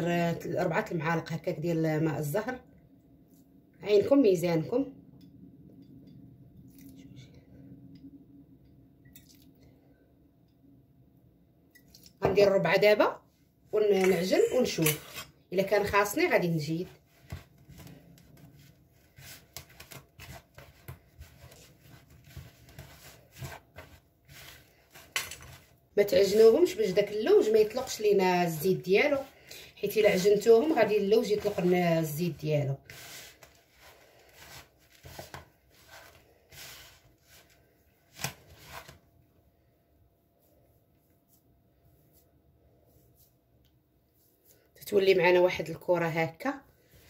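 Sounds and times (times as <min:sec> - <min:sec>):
hands mixing crumbly filling: 0:15.9 - 0:39.0.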